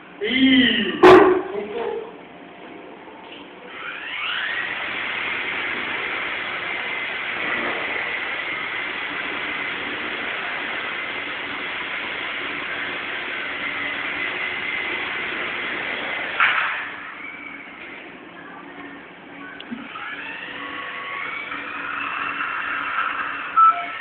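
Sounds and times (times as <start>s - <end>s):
toy helicopter motor whine: 3.7s - 17.8s, 19.8s - 24.0s
rotor blades whirring: 3.7s - 18.3s, 19.2s - 24.0s.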